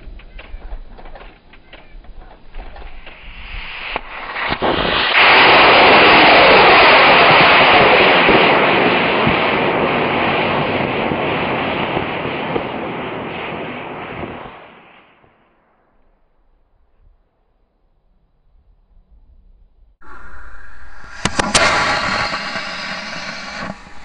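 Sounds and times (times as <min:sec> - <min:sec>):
rocket motor hissing and roaring: 0:20.0 - 0:24.0.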